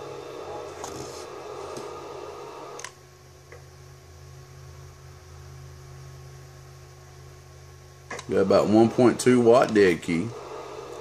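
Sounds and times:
radio hiss: 0.0s - 2.8s, 8.1s - 11.0s
electrical hum with faint whine: 0.0s - 11.0s.

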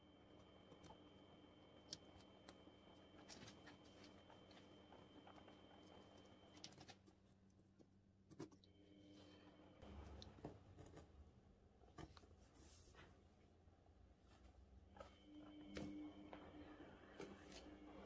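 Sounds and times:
guinea pigs rustling paper: 1.9s - 7.6s.

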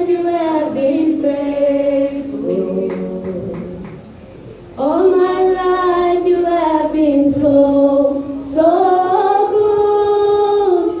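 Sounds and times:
woman singing unaccompanied: 4.8s - 11.0s.

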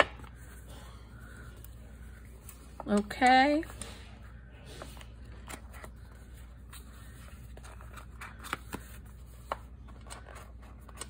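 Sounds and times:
paper rustling: 4.8s - 11.0s.

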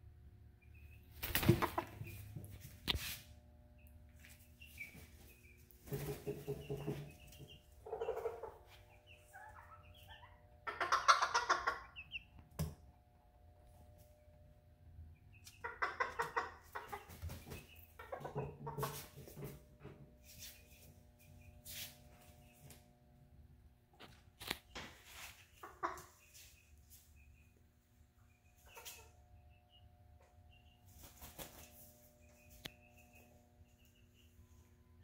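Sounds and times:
cockerel clucking and calling: 5.9s - 12.4s, 15.4s - 19.1s.

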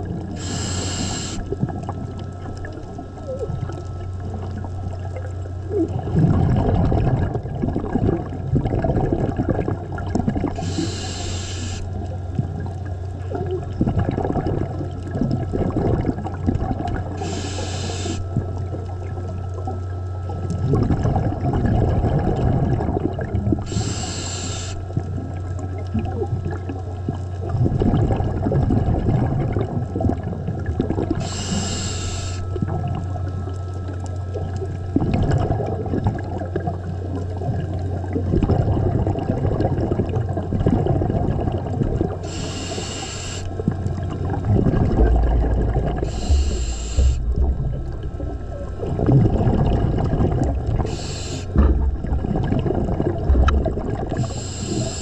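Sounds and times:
exhaled air bubbling: 0.0s - 55.0s
steady low hum: 0.0s - 55.0s
regulator inhale hiss: 0.3s - 1.6s, 10.6s - 12.0s, 17.2s - 18.4s, 23.6s - 25.0s, 31.2s - 32.6s, 42.2s - 43.6s, 45.9s - 47.3s, 50.7s - 51.6s, 54.1s - 55.0s.

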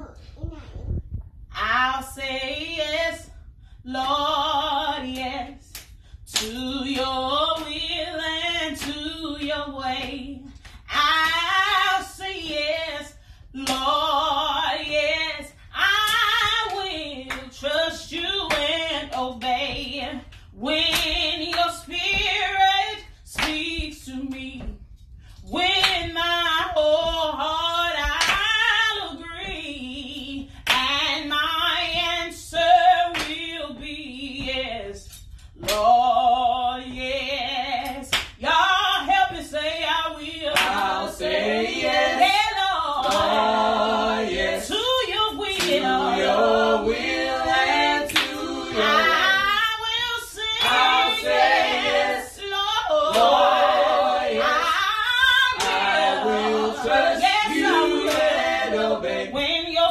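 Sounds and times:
group singing a cappella: 1.6s - 24.8s, 35.6s - 59.9s.

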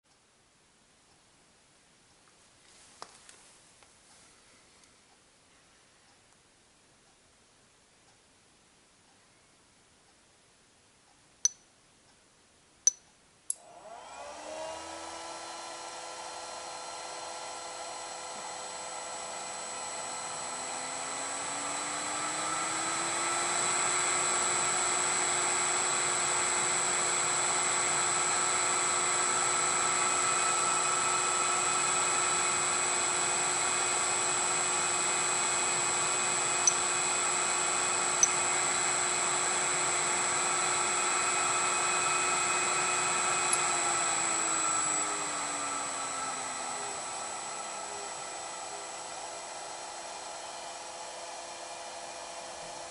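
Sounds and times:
electric motor humming and whining: 13.9s - 52.9s.

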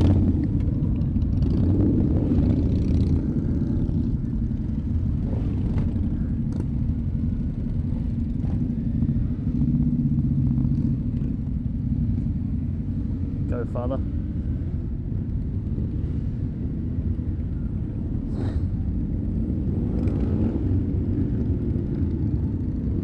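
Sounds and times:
motorcycle engines rumbling: 0.0s - 23.0s.

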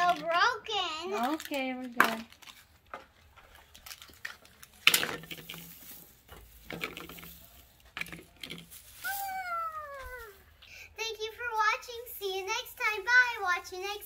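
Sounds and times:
plastic eggs clacking on glass: 0.0s - 5.8s, 6.4s - 8.7s
shredded paper rustling: 3.6s - 10.5s.

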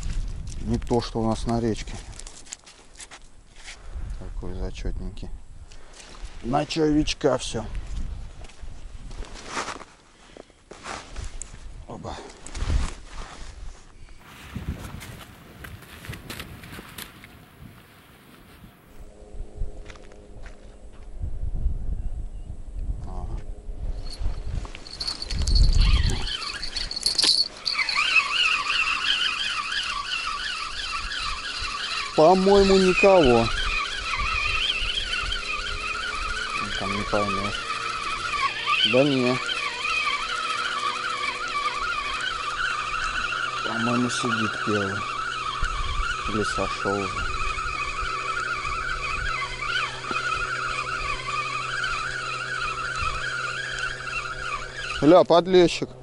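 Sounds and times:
low handling rumble: 14.9s - 56.0s
thin high whine: 17.0s - 56.0s
fishing reel gear whine: 21.9s - 56.0s.

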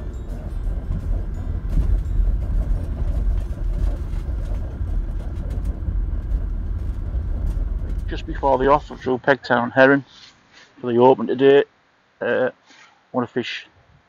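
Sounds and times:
car engine and road rumble: 0.0s - 10.0s.

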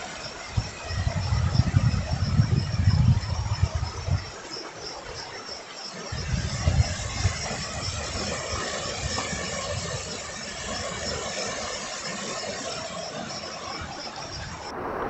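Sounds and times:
wind buffeting microphone: 0.4s - 5.0s, 6.1s - 11.3s, 13.2s - 15.0s.

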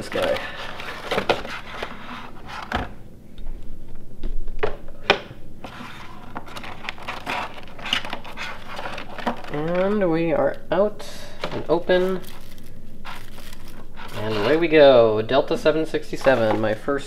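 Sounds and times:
plastic rustling: 0.0s - 3.0s, 5.6s - 10.6s, 11.2s - 14.8s, 15.4s - 17.0s
packaging being pulled open: 5.6s - 9.9s, 11.6s - 14.6s.

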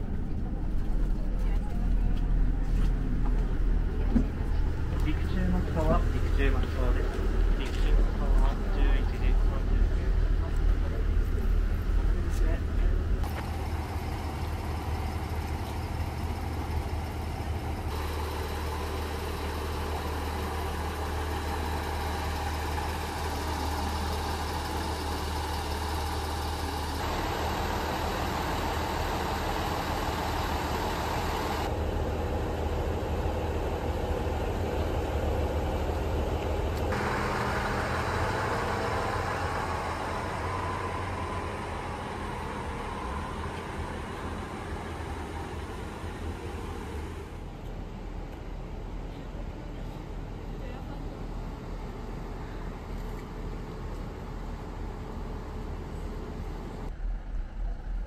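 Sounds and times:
diesel railcar idling: 0.0s - 58.0s.

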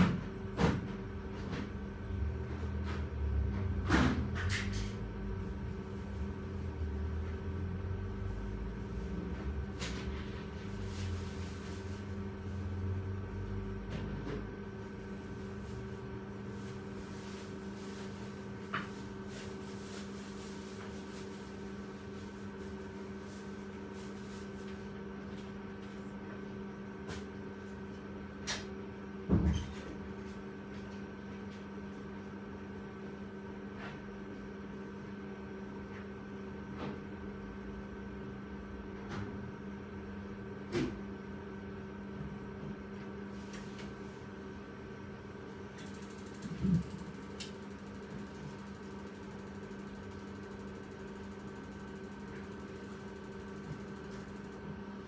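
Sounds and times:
electrical hum: 0.0s - 55.0s.

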